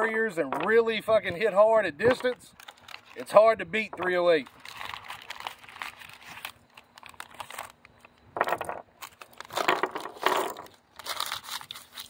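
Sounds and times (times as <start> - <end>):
cardboard crinkling and rustling: 2.1 - 8.2, 9.0 - 12.0.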